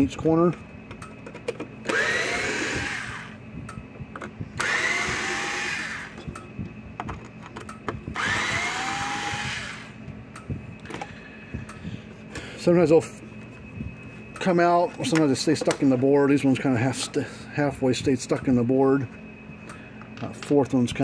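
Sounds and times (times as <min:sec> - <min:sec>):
electric screwdriver whirring: 0:01.9 - 0:03.4, 0:04.6 - 0:06.2, 0:08.2 - 0:09.9.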